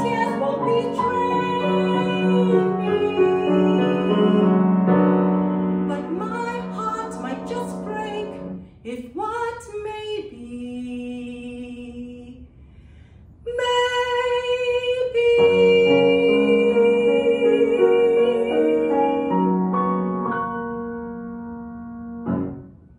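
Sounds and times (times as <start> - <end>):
woman singing: 0.0 - 4.6, 5.9 - 12.5, 13.5 - 19.6
grand piano accompaniment: 0.0 - 8.6, 15.4 - 22.9.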